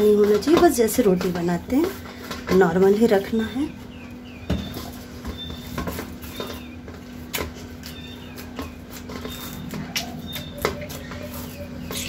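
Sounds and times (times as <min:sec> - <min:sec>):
hands kneading dough in bowl: 0:00.0 - 0:03.8
bird chirping: 0:03.3 - 0:06.9, 0:07.8 - 0:12.0.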